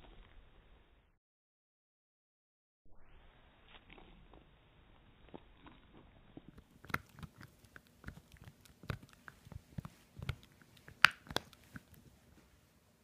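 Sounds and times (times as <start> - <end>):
dog chewing bone: 5.2 - 12.3.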